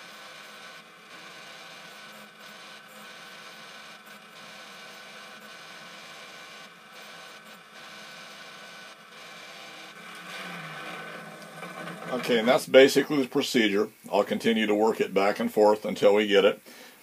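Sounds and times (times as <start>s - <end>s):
grinder wheel grinding metal: 0.0s - 12.9s.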